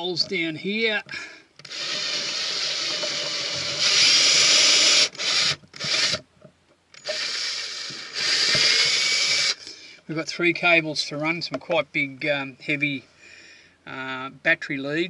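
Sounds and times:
cordless drill drilling: 0:01.6 - 0:06.2, 0:07.0 - 0:09.7.

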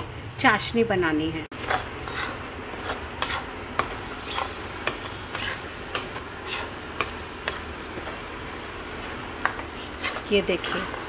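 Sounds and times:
metal spatula scraping pan: 0:01.5 - 0:08.2, 0:09.4 - 0:11.0.

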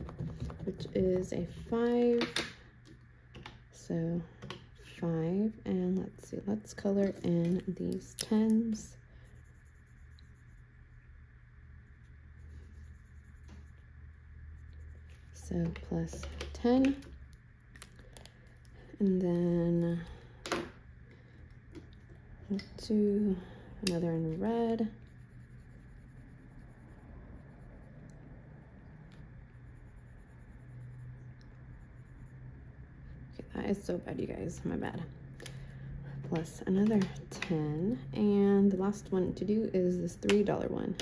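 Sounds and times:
marker scratching on paper: 0:00.0 - 0:02.1, 0:06.9 - 0:11.0, 0:11.8 - 0:17.1, 0:23.9 - 0:28.1, 0:29.1 - 0:32.8
low steady hum: 0:00.0 - 0:41.0.

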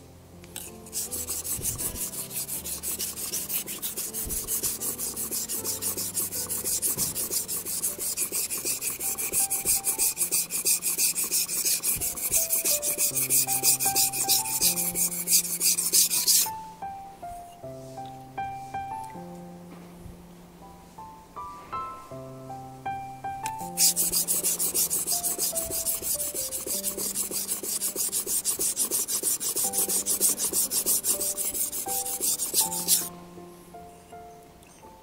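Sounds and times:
knife scraping on whetstone: 0:00.6 - 0:16.5, 0:23.7 - 0:33.1.

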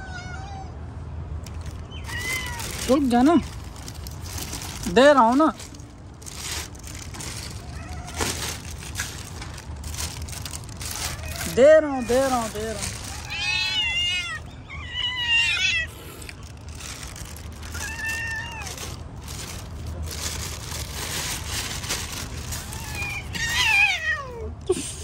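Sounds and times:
cat meowing: 0:00.0 - 0:00.8, 0:02.0 - 0:02.9, 0:07.6 - 0:08.6, 0:10.9 - 0:15.9, 0:17.7 - 0:19.0
plastic bag rustling: 0:01.4 - 0:14.5, 0:15.7 - 0:24.0.

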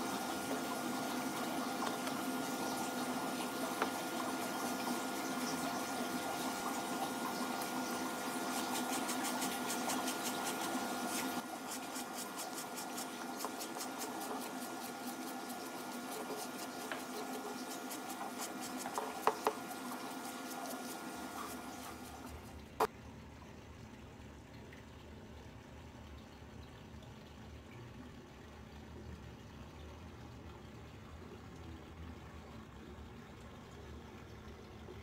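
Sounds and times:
brush scrubbing suede: 0:07.4 - 0:22.5.

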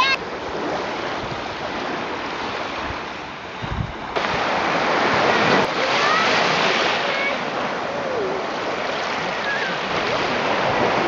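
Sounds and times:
waves washing onto beach: 0:00.0 - 0:11.0
bird calls: 0:09.3 - 0:09.8.

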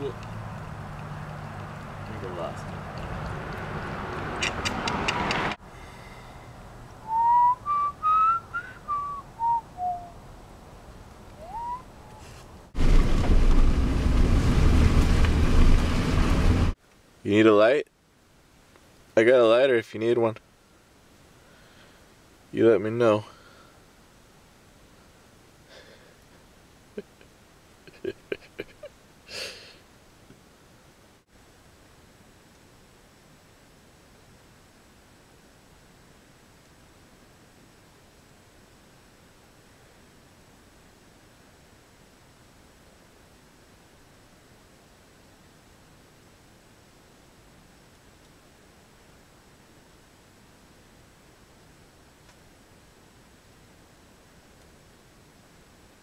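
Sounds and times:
sharp clicks: 0:02.6 - 0:05.6
person whistling a tune: 0:07.1 - 0:10.1, 0:11.4 - 0:12.2.

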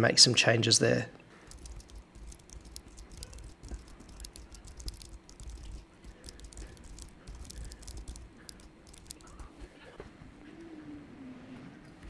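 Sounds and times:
computer keyboard typing: 0:01.5 - 0:09.5.

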